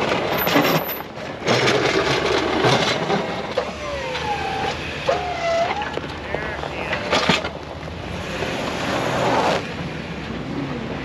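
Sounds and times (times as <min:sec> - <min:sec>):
snowplow blade scraping snow: 0:00.0 - 0:10.0
truck engine running under load: 0:00.0 - 0:11.0.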